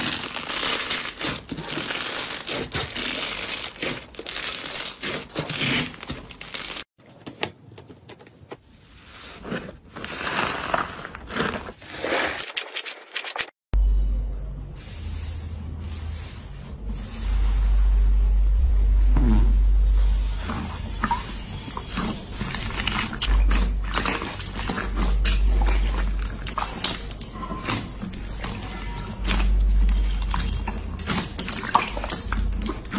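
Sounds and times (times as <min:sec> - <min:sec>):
low rumble: 0:16.9 - 0:21.0
slime squelching and popping: 0:22.7 - 0:32.9.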